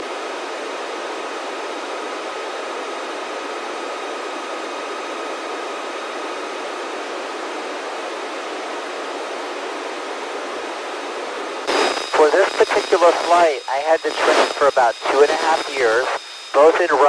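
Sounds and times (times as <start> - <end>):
radio receiver hiss: 11.6 - 17.0.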